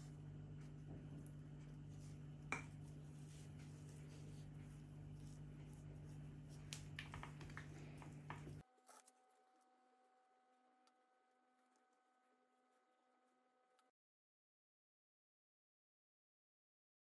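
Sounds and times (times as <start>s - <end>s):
steady low hum: 0.0s - 8.6s.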